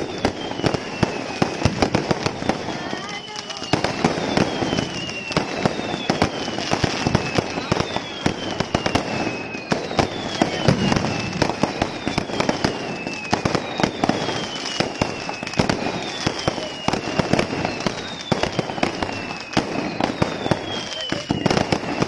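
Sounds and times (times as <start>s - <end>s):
firework bangs and crackling: 0.0s - 22.0s
firework whistle sliding down: 0.0s - 22.0s.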